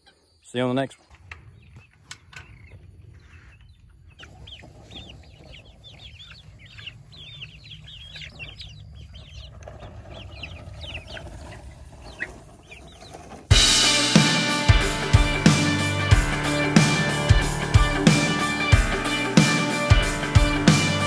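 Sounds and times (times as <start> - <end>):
chickens cheeping and clucking: 0.0 - 21.0.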